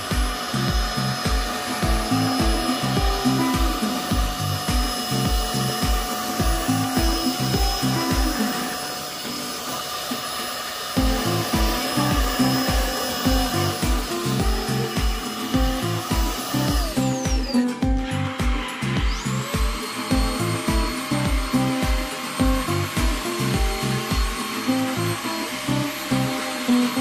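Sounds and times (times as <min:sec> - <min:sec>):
handheld vacuum whining: 0:00.0 - 0:27.0
music with steady drum beat: 0:00.0 - 0:27.0.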